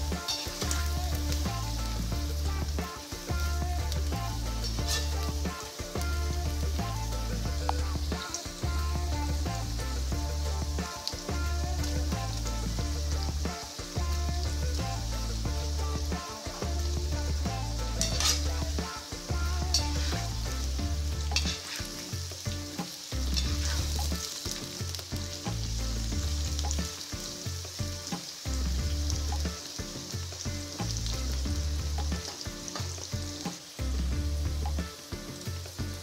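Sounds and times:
low steady tones: 0:00.0 - 0:36.0
vegetables sizzling in oil: 0:00.0 - 0:36.0
metal spatula scraping pan: 0:04.6 - 0:05.9, 0:17.8 - 0:20.7, 0:21.3 - 0:22.2, 0:22.8 - 0:24.8.

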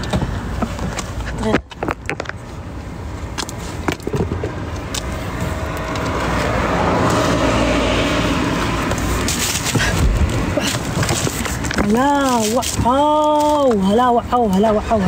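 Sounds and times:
car passing by: 0:05.3 - 0:10.4.

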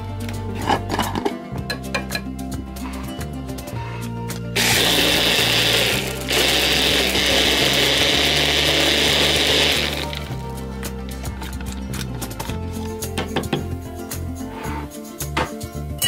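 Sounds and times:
blender running: 0:04.6 - 0:10.4.

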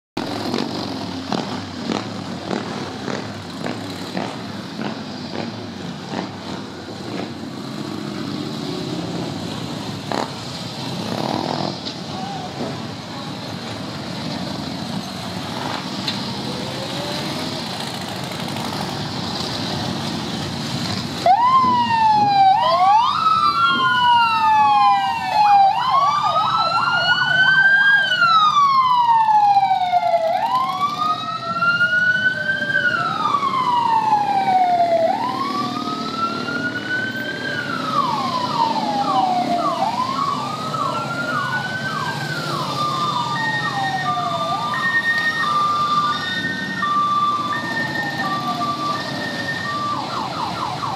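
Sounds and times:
motorcycles rumbling past: 0:00.2 - 0:12.8, 0:14.1 - 0:21.9
siren wailing and yelping: 0:21.2 - 0:50.9.

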